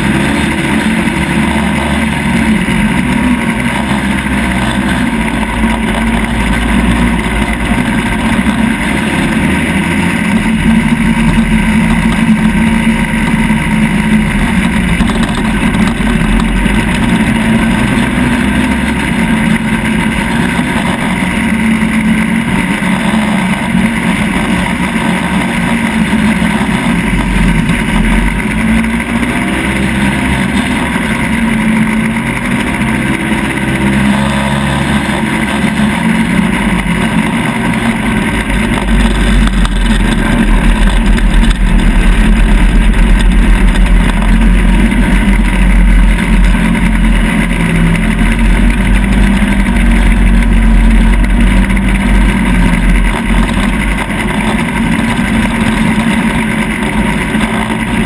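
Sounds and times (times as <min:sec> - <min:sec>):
off-road vehicle engine running: 0:00.0 - 0:58.0
wind rumbling on microphone: 0:35.1 - 0:58.0.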